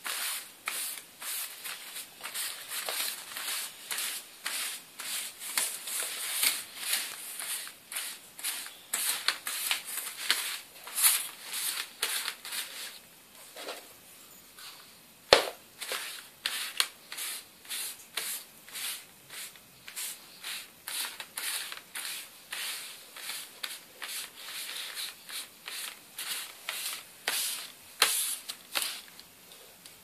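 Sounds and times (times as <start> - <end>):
paper rustling: 0.0 - 13.0.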